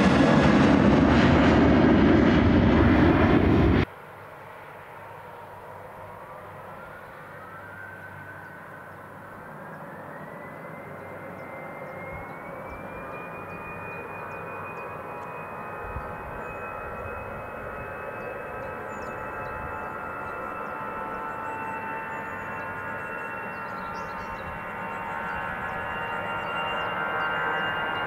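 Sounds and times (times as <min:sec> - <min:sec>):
jet airliner roar: 0:00.0 - 0:28.0
turbofan whine rising in pitch: 0:06.1 - 0:28.0.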